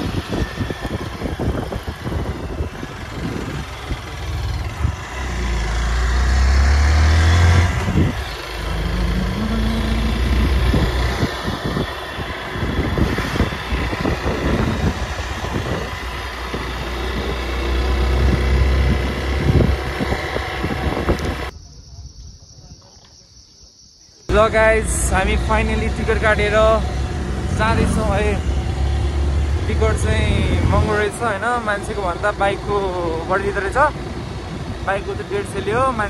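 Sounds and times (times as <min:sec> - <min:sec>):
motorbike engine running: 0:00.0 - 0:21.5
wind buffeting microphone: 0:00.0 - 0:22.8, 0:24.4 - 0:36.0.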